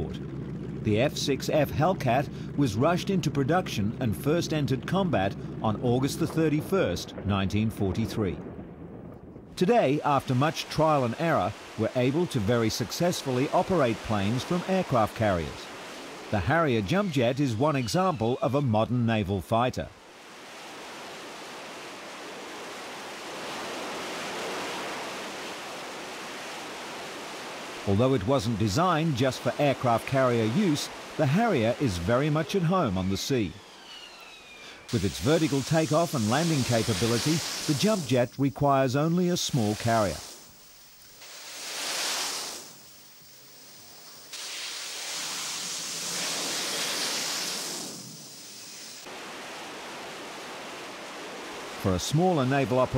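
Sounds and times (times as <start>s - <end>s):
jet engine roar: 27.9s - 49.1s.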